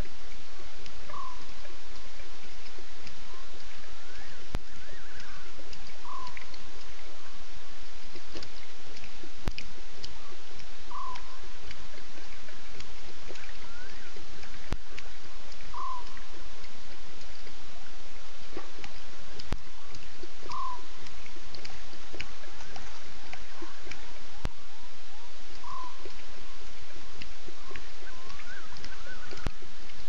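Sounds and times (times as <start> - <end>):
frog and insect chorus: 0.0 - 30.0
steady hiss: 0.0 - 30.0
sharp clicks: 4.5 - 7.0, 8.1 - 11.8, 18.8 - 24.0, 25.5 - 30.0.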